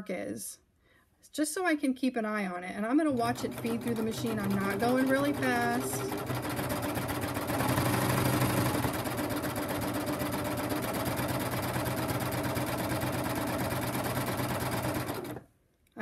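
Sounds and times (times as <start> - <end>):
sewing machine motor hum: 3.1 - 15.4
sewing machine needle rhythm: 3.1 - 15.4.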